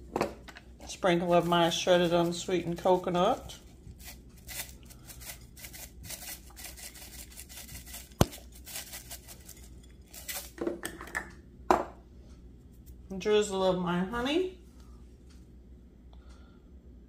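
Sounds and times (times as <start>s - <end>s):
dry rustling shakes: 1.2s - 10.6s.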